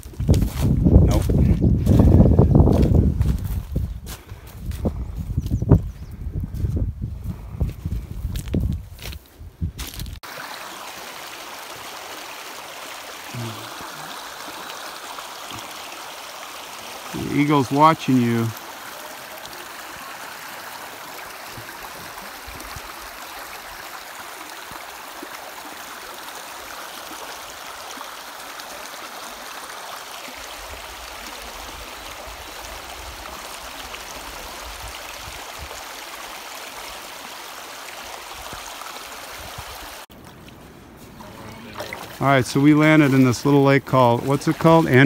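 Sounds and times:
water rushing in rocky creek: 9.8s - 45.0s.

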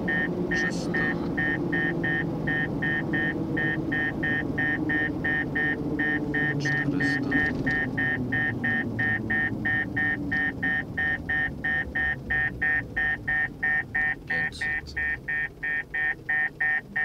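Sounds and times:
car rumble: 0.0s - 17.0s
rapid alarm beeps: 0.1s - 17.0s.

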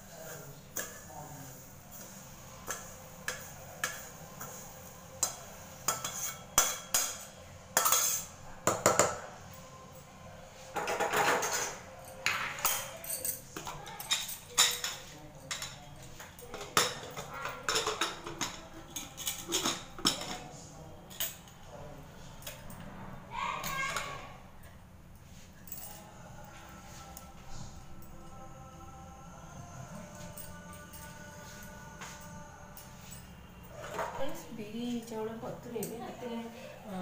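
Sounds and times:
metal pots clinking: 10.8s - 20.5s.

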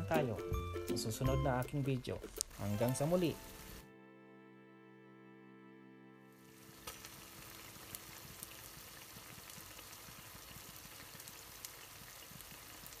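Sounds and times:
sharp pops: 2.2s - 2.6s
food simmering and sizzling in pan: 2.3s - 3.9s, 6.4s - 13.0s.

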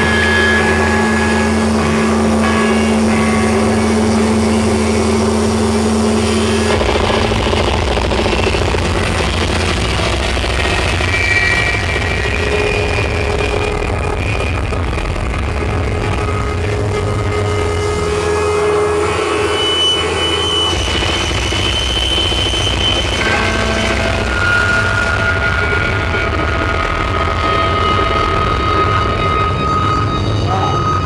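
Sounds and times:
distorted live punk band: 0.0s - 31.0s
droning guitar note: 0.0s - 31.0s.

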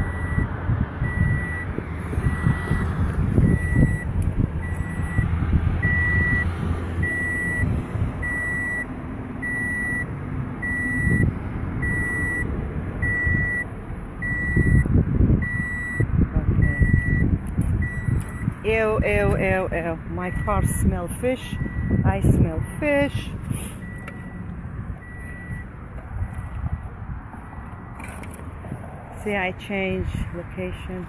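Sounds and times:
car warning chime beeping: 0.0s - 27.9s
wind and handling noise: 0.8s - 6.4s, 14.2s - 19.7s, 23.2s - 29.3s.

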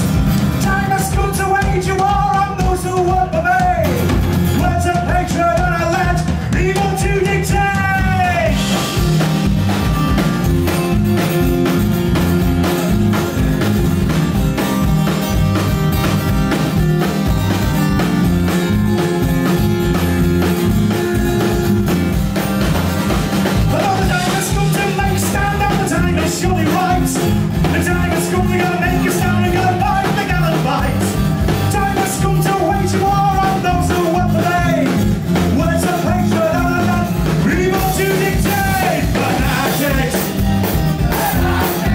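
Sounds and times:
acoustic guitar: 0.0s - 41.9s
drum kit: 0.0s - 41.9s
electric bass guitar: 0.0s - 41.9s
man singing: 0.6s - 8.8s, 23.6s - 40.4s, 41.0s - 41.9s.

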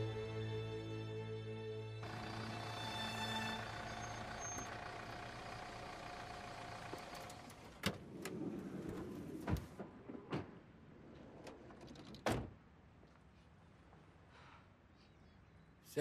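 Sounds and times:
car engine running: 2.0s - 7.8s.

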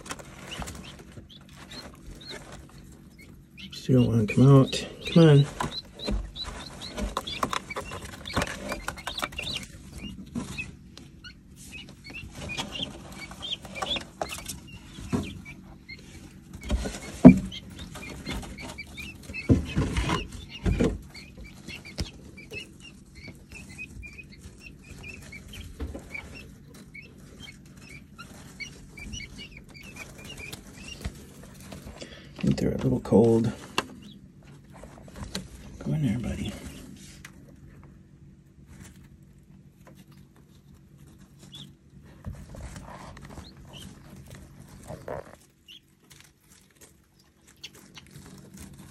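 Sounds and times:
guinea keets peeping: 0.0s - 48.9s
knocks and thumps: 16.6s - 22.6s.

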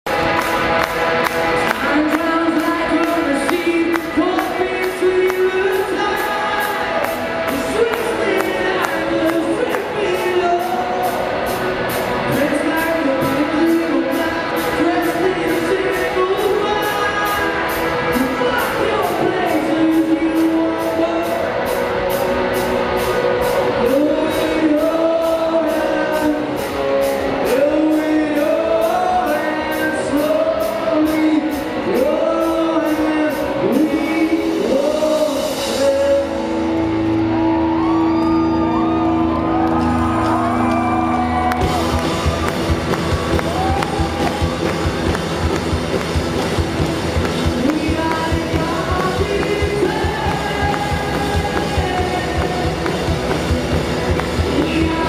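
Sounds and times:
rock band playing: 0.1s - 55.0s
man singing: 1.6s - 11.4s, 12.3s - 21.8s, 23.7s - 36.8s, 47.4s - 53.4s, 54.2s - 55.0s.

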